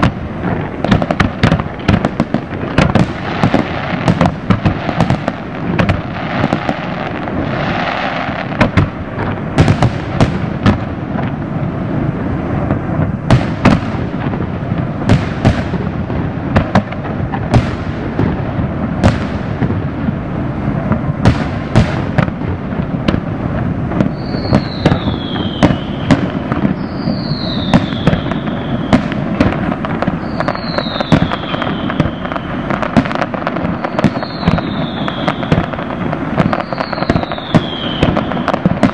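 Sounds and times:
fireworks bursts and bangs: 0:00.0 - 0:38.9
high falling whistle: 0:24.1 - 0:26.1, 0:26.8 - 0:29.0, 0:30.2 - 0:32.7.

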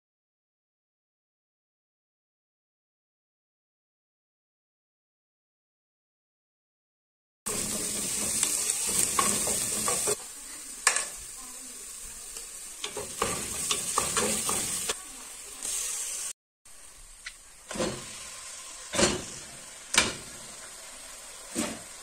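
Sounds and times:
onion sizzling in oil: 0:07.5 - 0:22.0.

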